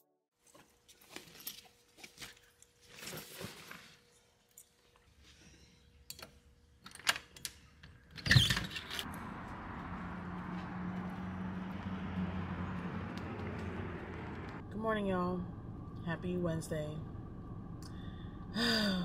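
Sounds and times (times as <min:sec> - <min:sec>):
steady low hum: 0:12.7 - 0:19.0.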